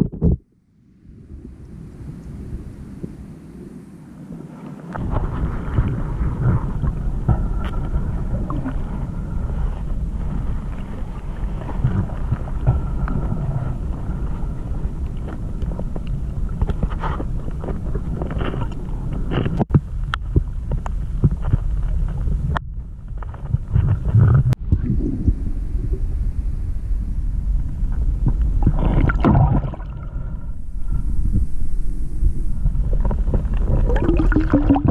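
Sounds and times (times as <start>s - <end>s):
low underwater rumble: 0.0s - 34.9s
clicks and scrapes on camera: 16.6s - 20.2s.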